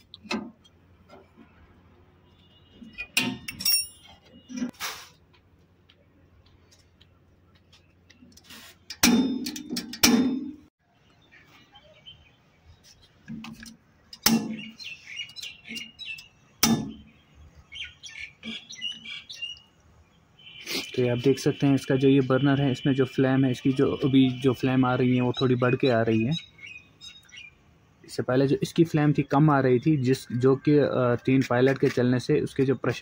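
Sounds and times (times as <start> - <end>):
metal clicks and rattles: 8.3 - 10.6
birds chirping: 10.9 - 33.0.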